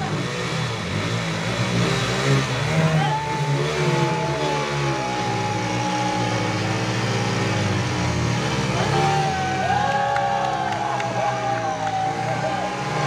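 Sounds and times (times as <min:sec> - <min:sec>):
motorcycle engines revving: 0:00.0 - 0:13.0
people shouting: 0:02.7 - 0:07.7, 0:08.4 - 0:13.0.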